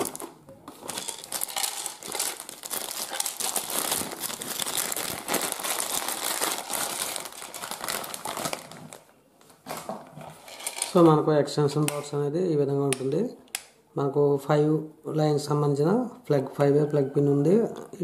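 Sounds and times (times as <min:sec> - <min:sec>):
plastic wrapping crinkling: 0:00.0 - 0:11.1.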